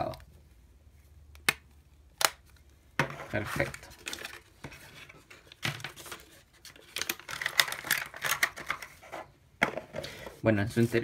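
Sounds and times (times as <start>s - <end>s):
card and paper rustling: 3.0s - 11.0s.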